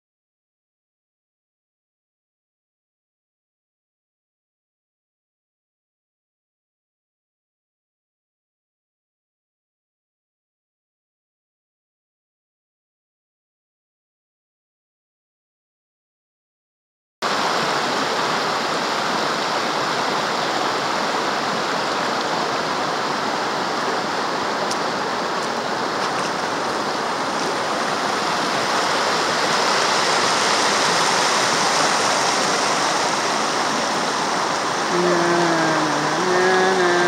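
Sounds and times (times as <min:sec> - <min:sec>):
river water rushing over rocks: 0:17.2 - 0:37.0.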